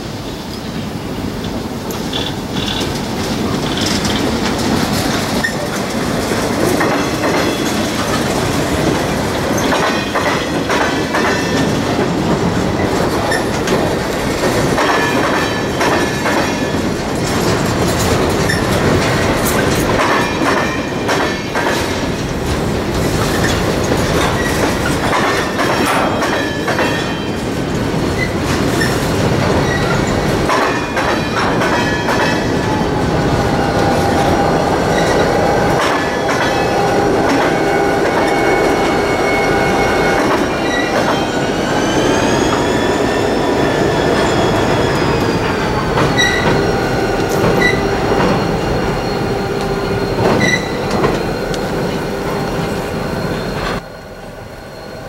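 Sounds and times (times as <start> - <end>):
train rumble on bridge: 0.0 - 55.0
train wheels clacking on rail joints: 0.6 - 53.8
train wheel squeal: 5.2 - 6.0, 12.8 - 13.8, 14.5 - 22.4, 23.0 - 27.5, 28.1 - 55.0.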